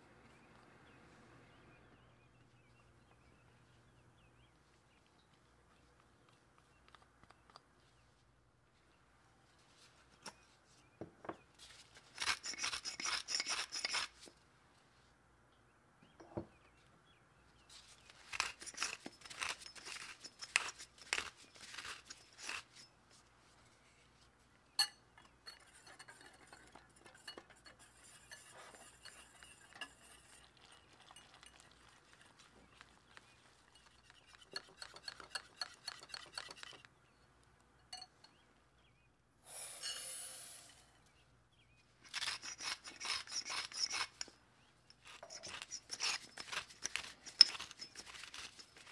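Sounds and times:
wire whisk scraping glass bowl: 0:12.2 - 0:14.1, 0:18.4 - 0:22.9, 0:25.4 - 0:32.3, 0:33.7 - 0:36.9, 0:42.1 - 0:44.3, 0:45.0 - 0:48.9
gritty clicking of seasoning: 0:18.2 - 0:22.8, 0:25.2 - 0:36.9, 0:42.0 - 0:48.9.

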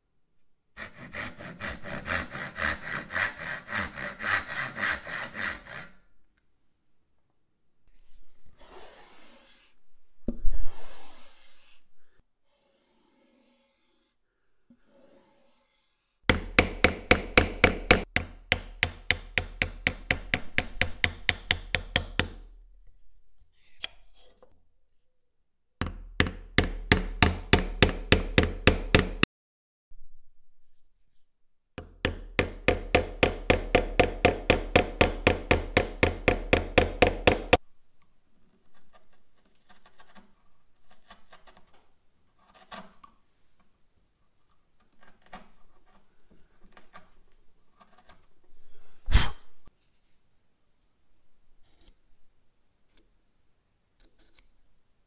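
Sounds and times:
chisel paring taps and scrapes: 0:16.3 - 0:22.5, 0:23.6 - 0:24.6, 0:31.8 - 0:37.6, 0:44.4 - 0:47.2, 0:47.8 - 0:48.3.

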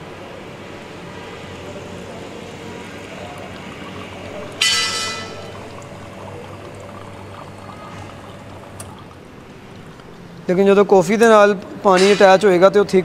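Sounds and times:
espresso machine humming: 0:00.0 - 0:11.8
water running into cups: 0:01.1 - 0:12.4.

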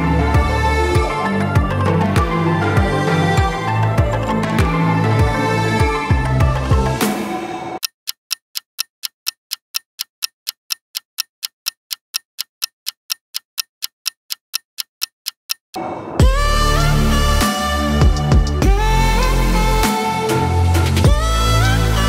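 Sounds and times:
steady ticking: 0:00.0 - 0:07.0, 0:07.8 - 0:20.0
background music: 0:00.0 - 0:07.8, 0:16.2 - 0:22.0.

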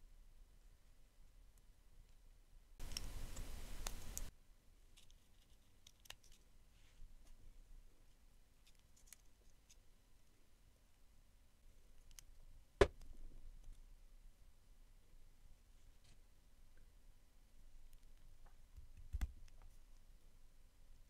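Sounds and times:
plastic toy parts clicking: 0:05.0 - 0:06.4.

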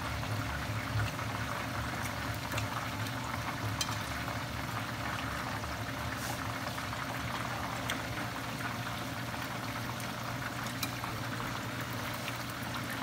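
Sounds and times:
chicken deep-frying in oil: 0:00.0 - 0:13.0.

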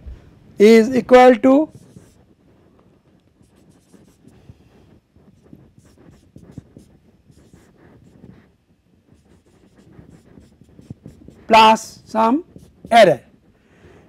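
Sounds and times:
marker pen writing on whiteboard: 0:00.0 - 0:14.0.

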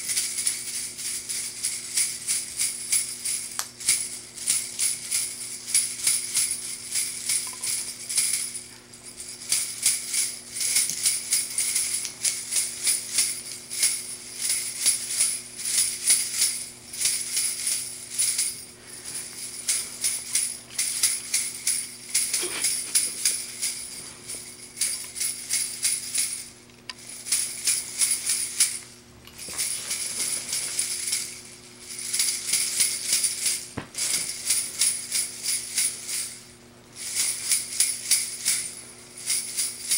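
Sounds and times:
jingle bells shaken: 0:00.0 - 0:39.9.

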